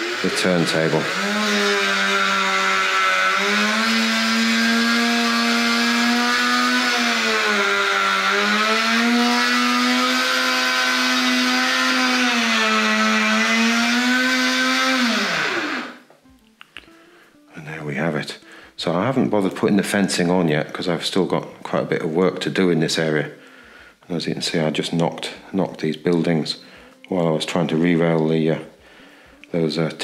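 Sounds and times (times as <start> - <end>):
electric motor whining: 0.0 - 16.1.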